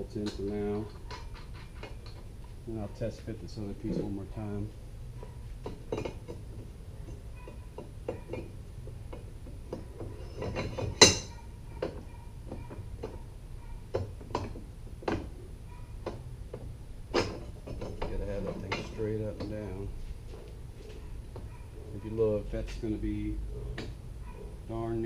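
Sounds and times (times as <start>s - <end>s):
metal clank: 7.1s - 13.2s, 17.1s - 19.7s.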